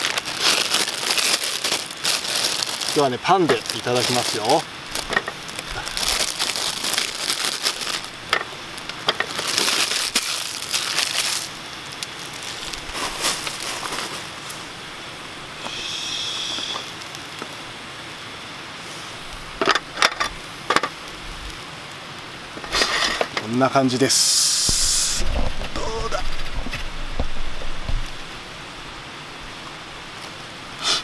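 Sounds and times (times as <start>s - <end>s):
plastic bag crinkling: 0.0s - 14.8s.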